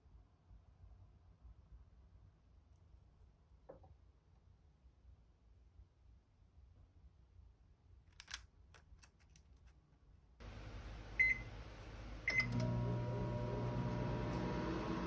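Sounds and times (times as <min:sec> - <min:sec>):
microwave oven humming: 0:10.4 - 0:15.0
microwave panel beeping: 0:10.5 - 0:15.0.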